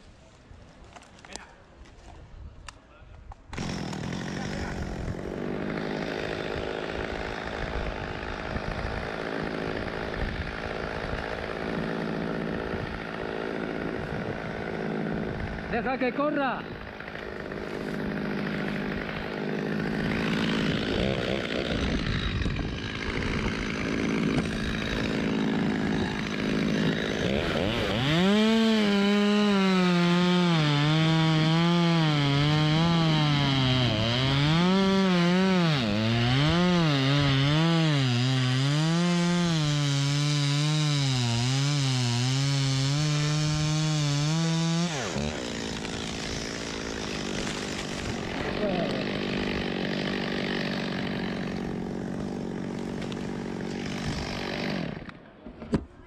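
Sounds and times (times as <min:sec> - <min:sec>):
chainsaw cutting wood: 0:03.5 - 0:55.2
rough scraping and rustling: 0:17.4 - 0:19.4, 0:45.0 - 0:48.7.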